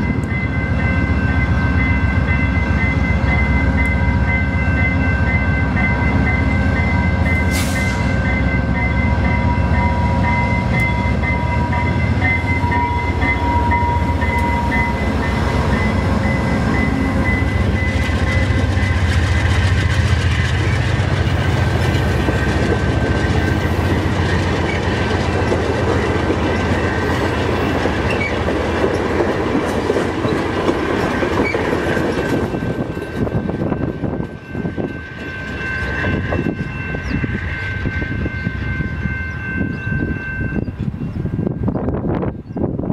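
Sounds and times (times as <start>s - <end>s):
diesel locomotive rumbling past: 0.0s - 42.9s
train cars clicking over rail joints: 16.6s - 33.4s.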